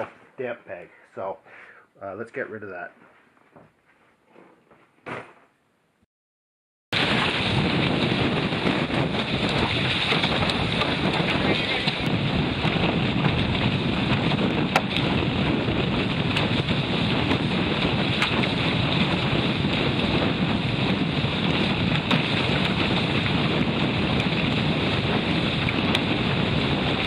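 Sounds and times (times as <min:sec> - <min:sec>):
water rushing along hull: 0:07.0 - 0:27.0
wind buffeting microphone: 0:07.0 - 0:27.0.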